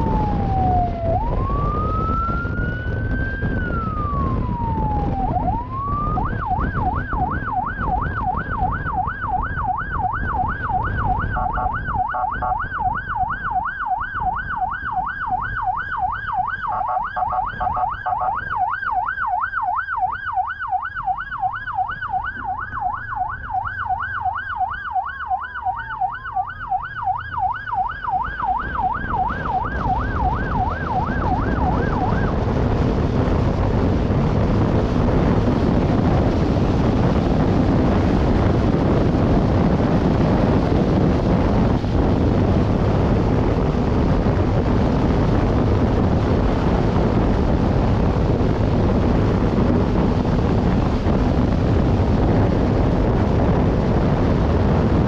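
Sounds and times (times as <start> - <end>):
police siren yelping: 0.0 - 32.9
wind on microphone: 0.0 - 55.0.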